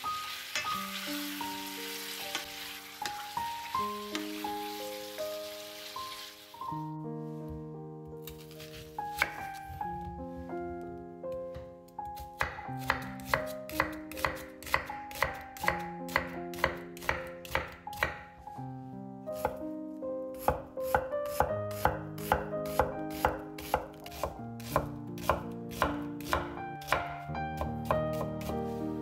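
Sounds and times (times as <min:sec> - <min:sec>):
knife chopping on wooden board: 0:08.2 - 0:09.6, 0:12.1 - 0:18.2, 0:19.4 - 0:19.6, 0:20.4 - 0:28.6.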